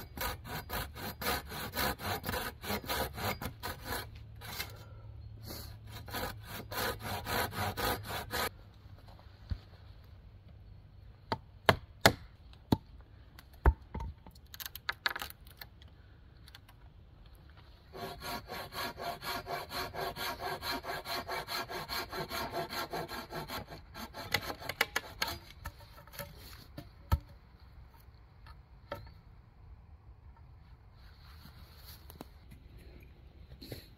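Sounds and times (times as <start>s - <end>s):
hand saw cutting wood: 0.0s - 4.8s, 5.4s - 8.5s, 17.9s - 26.7s.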